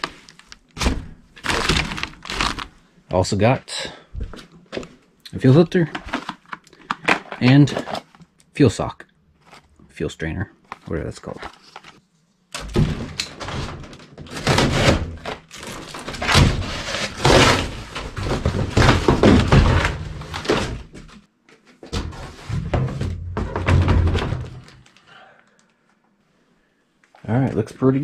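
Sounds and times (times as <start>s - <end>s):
cardboard ripping: 0.8s - 2.7s, 14.4s - 20.6s.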